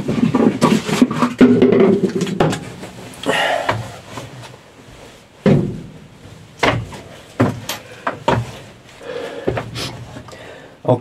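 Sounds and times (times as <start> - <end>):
heavy footsteps on wooden floor: 3.4 - 10.3.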